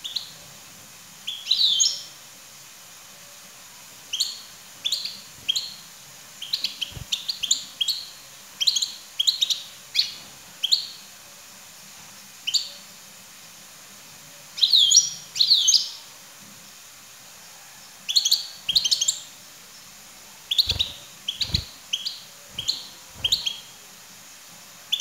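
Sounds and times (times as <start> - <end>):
goldfinch twittering calls: 6.4 - 10.1, 18.1 - 19.2, 20.5 - 23.7.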